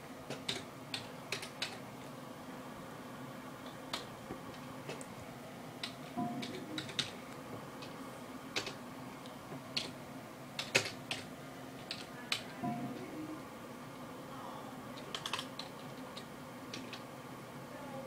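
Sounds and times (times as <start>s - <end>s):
keyboard keys clicking: 0.3s - 1.8s, 5.8s - 7.2s, 8.6s - 8.8s, 9.7s - 10.0s, 10.6s - 13.1s, 15.0s - 17.0s.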